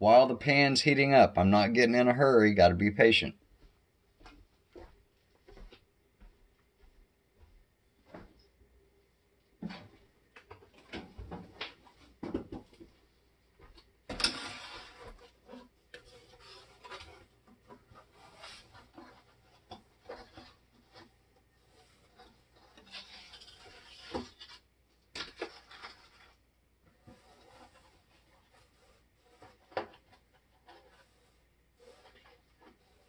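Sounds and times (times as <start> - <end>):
rustling scrapes: 14.1 - 33.0.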